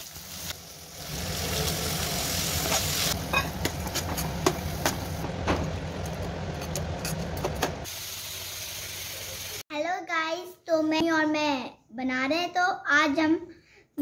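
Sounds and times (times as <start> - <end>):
vegetables sizzling in a pan: 0.0 - 5.2, 7.8 - 9.6.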